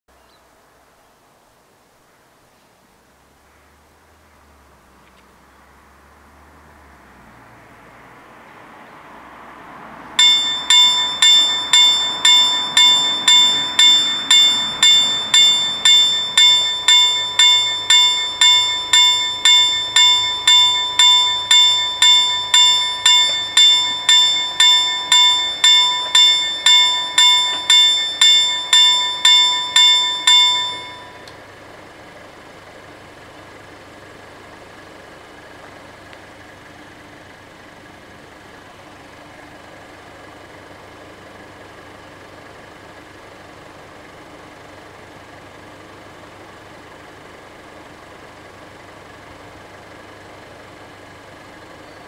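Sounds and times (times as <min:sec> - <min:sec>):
level-crossing warning bells: 0:10.0 - 0:31.5.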